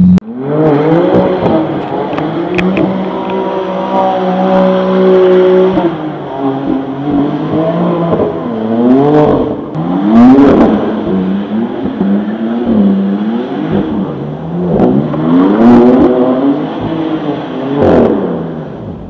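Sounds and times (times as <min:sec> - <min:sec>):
car engine revving: 0:00.0 - 0:19.0.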